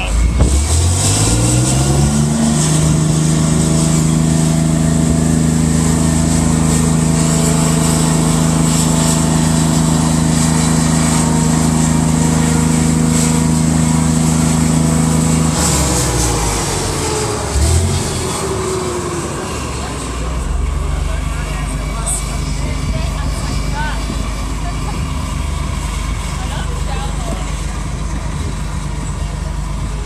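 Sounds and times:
tank diesel engine revving: 0.0 - 30.0.

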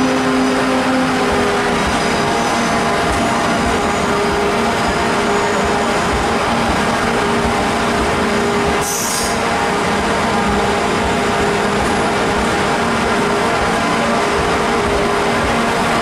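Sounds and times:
train engine drone: 0.0 - 16.0
air hiss: 8.8 - 9.6.

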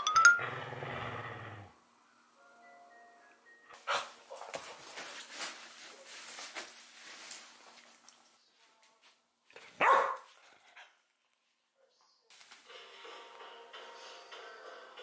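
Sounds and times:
dog barking: 9.8 - 10.4.

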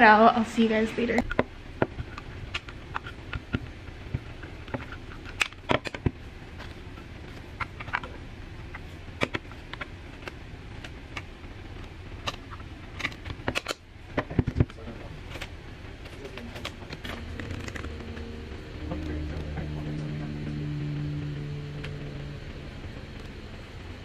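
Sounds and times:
sharp plastic clacks: 8.7 - 17.9.

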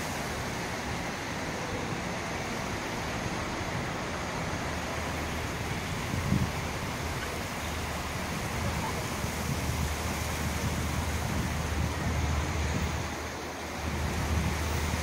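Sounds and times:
highway traffic hiss: 0.0 - 15.0
wind on microphone: 5.2 - 15.0.

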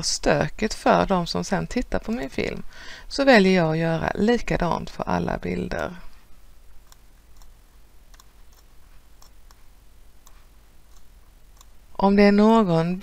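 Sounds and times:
low steady hum: 0.0 - 13.0
computer mouse clicking: 6.8 - 9.6, 10.2 - 11.8.

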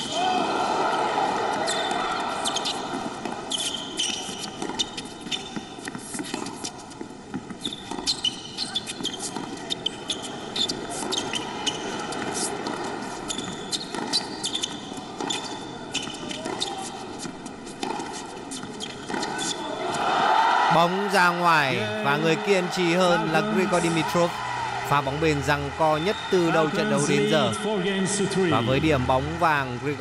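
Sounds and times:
shoes squeaking on hard court: 1.4 - 20.1
tennis ball bouncing: 2.4 - 19.6.

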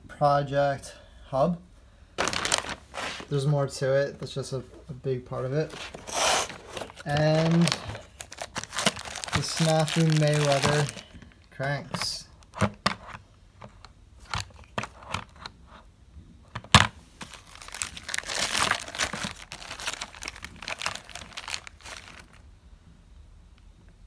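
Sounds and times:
plastic packaging crinkling: 2.2 - 3.4, 5.6 - 13.2, 16.8 - 22.4.

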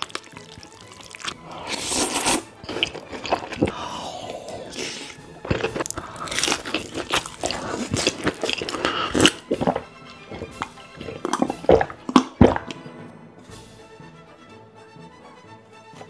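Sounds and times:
crunchy chewing: 0.0 - 12.8
slurping soup: 0.0 - 12.9
utensil scrapes: 1.3 - 3.7, 4.5 - 12.7.

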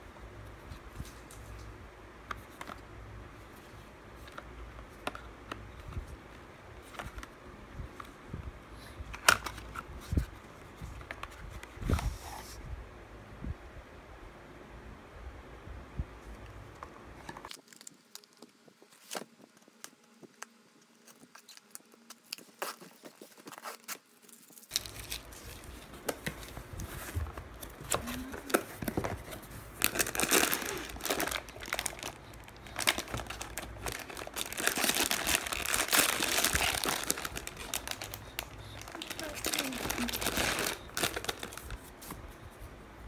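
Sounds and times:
plastic wrap crinkling: 17.4 - 42.2.

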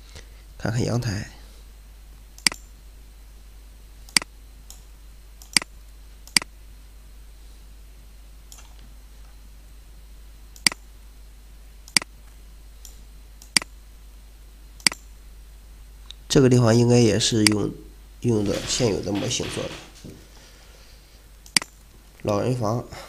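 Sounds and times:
computer mouse clicking: 2.4 - 2.7, 6.3 - 6.5, 12.8 - 13.7, 14.8 - 15.1, 21.4 - 21.8.

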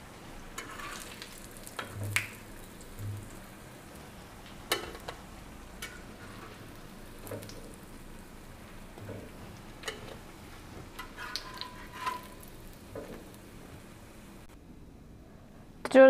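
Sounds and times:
food sizzling in oil: 0.0 - 14.5
metal spatula scraping pan: 0.6 - 1.2, 11.0 - 12.5.

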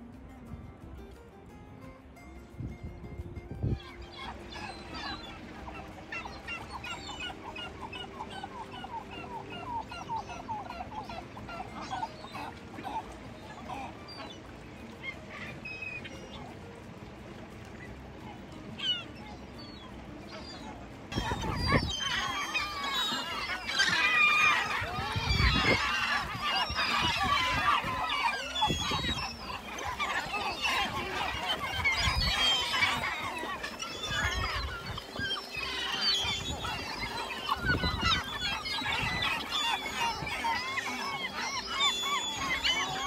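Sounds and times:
flock of birds calling: 3.6 - 43.0.

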